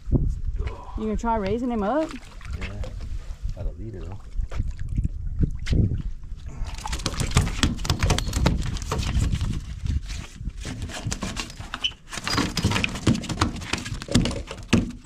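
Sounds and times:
shark slapping wet wooden boards: 6.7s - 9.8s, 10.6s - 15.0s.

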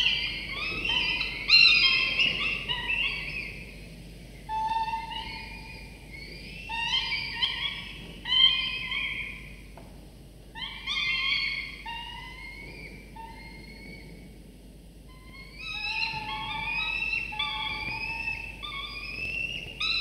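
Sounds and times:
falcon chicks begging calls: 0.0s - 3.8s, 4.4s - 9.7s, 15.2s - 20.0s.

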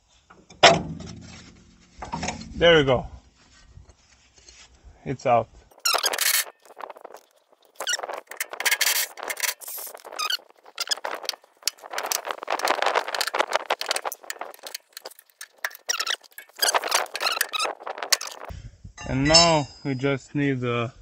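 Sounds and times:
metal scraping: 5.7s - 19.6s
wrench squeaking on rusty bolt: 5.8s - 18.5s.

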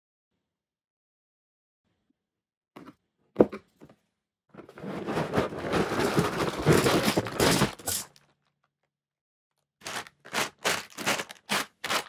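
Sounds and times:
packaging tearing and crinkling: 4.9s - 8.2s, 9.8s - 12.0s.

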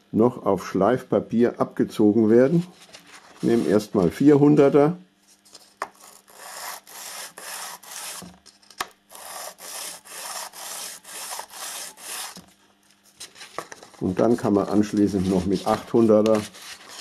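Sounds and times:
metal rubbed on abrasive paper: 6.0s - 8.3s, 9.1s - 12.4s, 14.2s - 17.0s.

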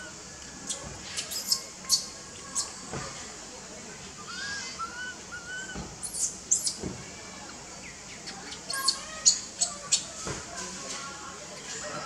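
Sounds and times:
high-pitched animal squeaks: 8.7s - 10.0s.

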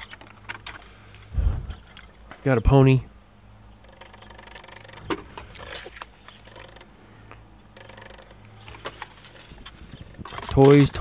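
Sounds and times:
plastic toys rustling and clicking: 0.0s - 2.3s, 3.9s - 6.9s, 7.8s - 11.0s.

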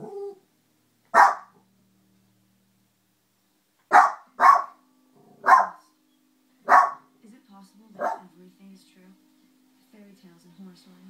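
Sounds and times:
small dog barking: 1.1s - 1.6s, 3.9s - 4.8s, 5.4s - 5.8s, 6.7s - 7.0s, 8.0s - 8.2s.

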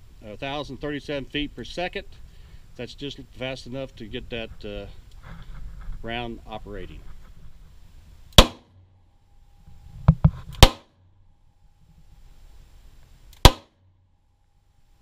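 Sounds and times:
revolver gunshots: 8.4s - 8.8s, 10.6s - 10.9s, 13.4s - 13.7s
short sharp cracks: 10.5s - 11.0s, 13.3s - 13.9s.

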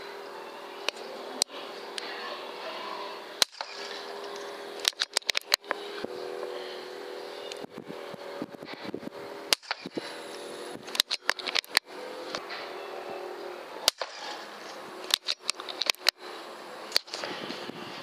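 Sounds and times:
steady hum: 0.0s - 18.0s
air rifle cycling clicks: 3.4s - 5.8s, 10.8s - 12.4s, 13.9s - 14.4s, 15.0s - 16.2s, 16.9s - 17.3s
air rifle firing cracks: 3.4s - 5.8s, 9.5s - 11.9s, 13.8s - 16.2s, 16.9s - 17.2s.

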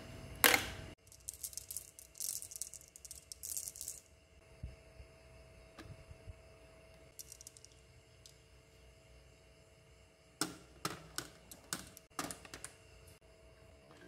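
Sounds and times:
marbles clicking together: 1.0s - 4.1s, 7.1s - 8.4s
marbles rattling in hand: 1.0s - 4.1s, 7.1s - 7.8s.

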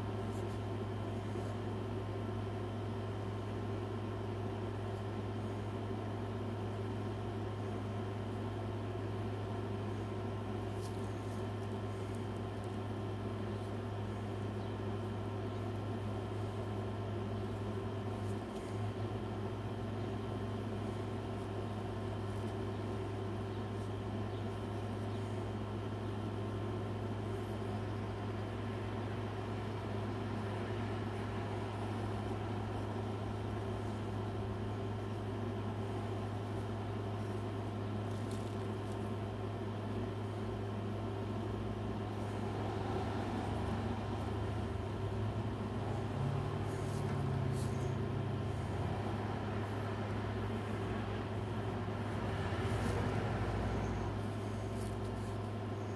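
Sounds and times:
low mechanical hum: 0.0s - 55.9s.

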